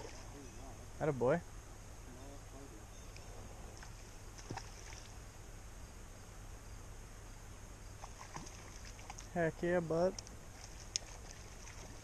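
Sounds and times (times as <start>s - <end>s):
faint high steady tone: 0.0s - 4.2s
low rumble and hiss: 0.0s - 12.0s.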